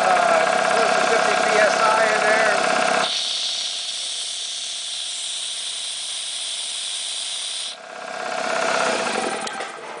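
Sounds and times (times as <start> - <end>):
compressor motor running: 0.0 - 10.0
compressed air hissing: 2.9 - 7.8.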